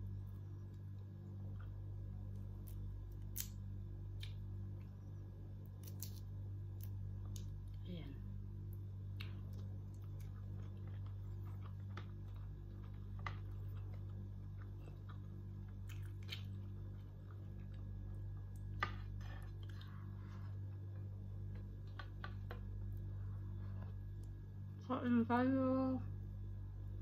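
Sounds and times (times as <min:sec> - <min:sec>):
steady low hum: 0:00.0 - 0:27.0
faint chewing: 0:08.7 - 0:24.4.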